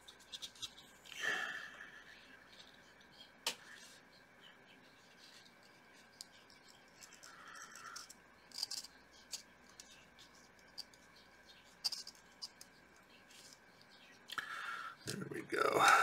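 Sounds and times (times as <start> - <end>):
faint steady background tone: 0.0 - 16.0
fingers clicking and scratching: 5.3 - 14.3.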